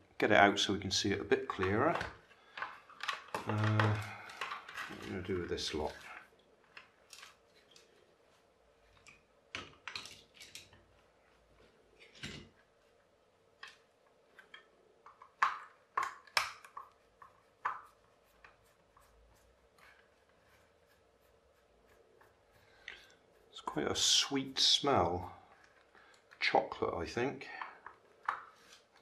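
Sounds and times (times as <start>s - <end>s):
plastic and metal parts clicking: 1.6s - 5.1s.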